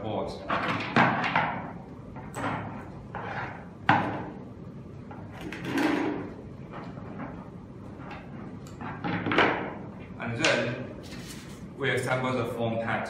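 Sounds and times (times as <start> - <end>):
plastic knocks and rattling: 8.0 - 9.8.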